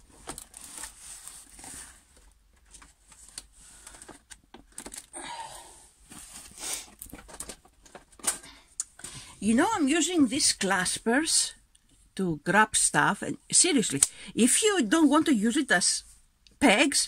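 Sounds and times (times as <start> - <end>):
canvas rustling and crinkling: 0.0 - 4.1.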